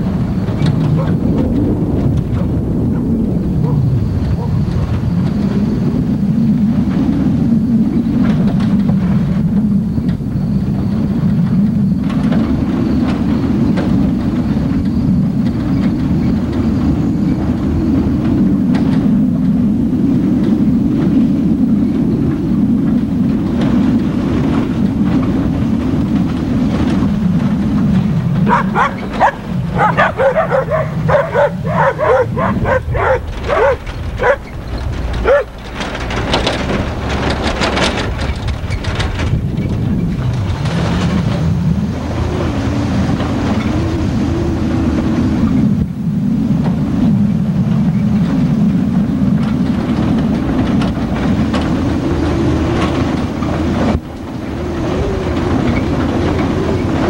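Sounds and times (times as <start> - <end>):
truck rumbling on gravel road: 0.0 - 57.0
dog barking yips: 1.0 - 1.2, 3.6 - 4.6, 28.4 - 34.6, 35.2 - 35.6
knocks from rough road: 32.1 - 41.5.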